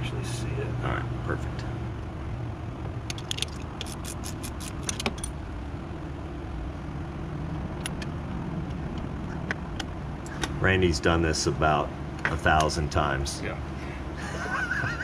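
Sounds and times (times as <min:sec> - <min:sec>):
steady low hum: 0:00.0 - 0:15.0
metallic clicks and rattles: 0:03.0 - 0:05.4.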